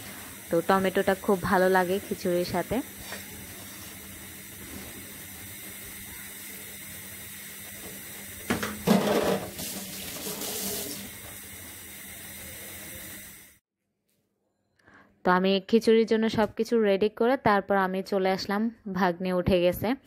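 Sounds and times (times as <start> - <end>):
water running and splashing: 0.0 - 13.6.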